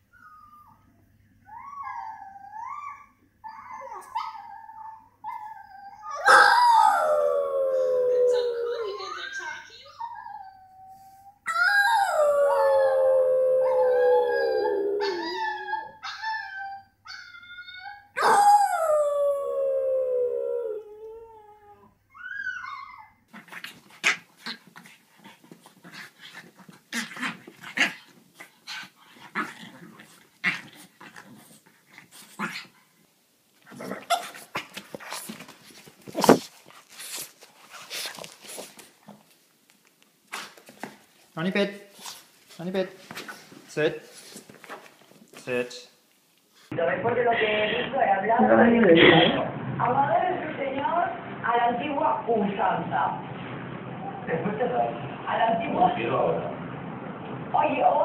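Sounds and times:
dog howling: 5.5s - 9.2s, 11.5s - 23.1s
dog yelping: 5.6s - 7.4s, 13.4s - 18.9s
rustling and scuffling: 33.5s - 45.7s.

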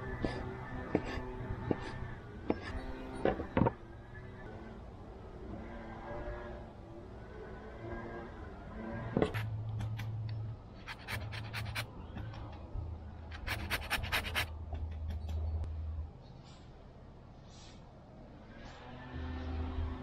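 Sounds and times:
grater scraping orange: 10.9s - 11.8s, 13.4s - 14.5s.

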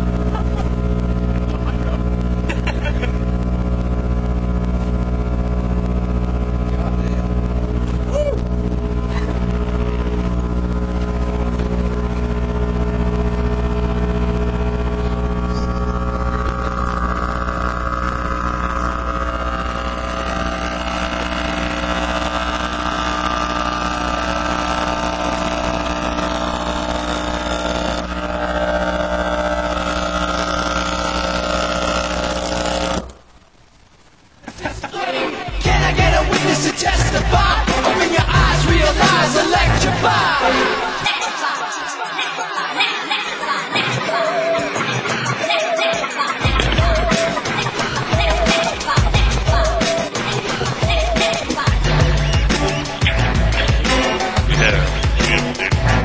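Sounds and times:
subwoofer buzzing mains hum: 0.0s - 42.0s, 46.4s - 56.0s
harsh high rasp: 15.2s - 33.1s.

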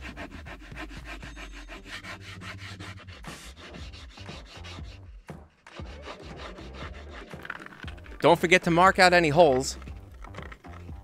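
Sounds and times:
pencil scratching: 0.0s - 8.3s.

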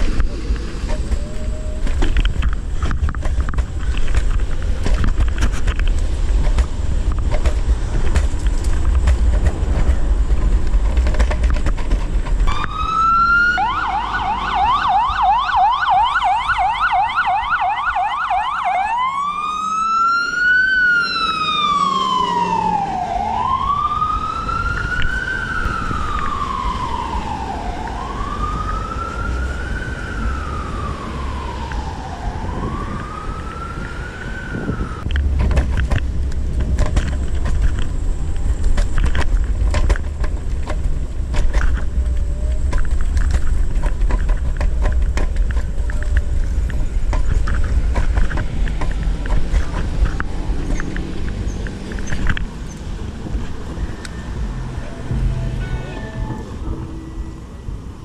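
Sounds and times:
emergency vehicle siren: 0.0s - 2.6s, 12.5s - 35.1s, 53.0s - 58.0s
wind buffeting microphone: 0.0s - 17.6s, 22.5s - 55.6s.

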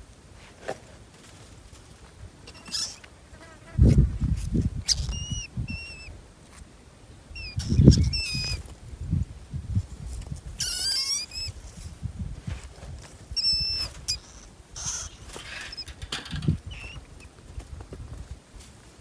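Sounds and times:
rats squeaking: 2.5s - 3.1s, 4.8s - 6.1s, 7.3s - 8.6s, 10.5s - 11.6s, 13.3s - 17.3s
wire trap cages rattling: 14.9s - 17.0s.

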